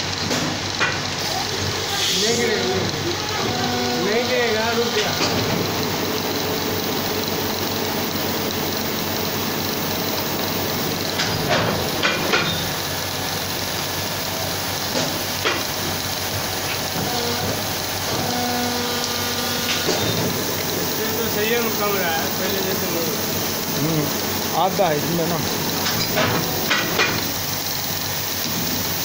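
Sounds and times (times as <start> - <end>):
moulding machine hissing: 0.0 - 29.0
sharp knocks and clicks: 11.2 - 12.6, 25.8 - 27.3.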